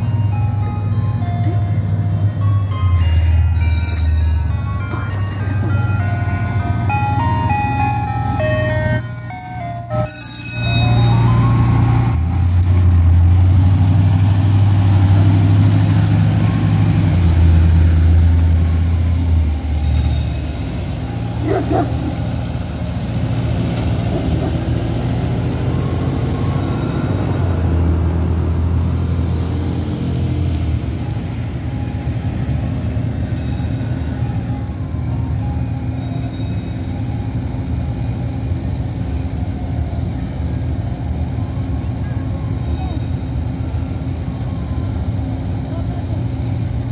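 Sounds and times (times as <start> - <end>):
ice cream truck chime jingle: 0.0 - 12.6, 18.6 - 22.8, 24.8 - 27.9, 30.6 - 39.2, 41.7 - 44.8
truck engine driving past: 10.6 - 35.9.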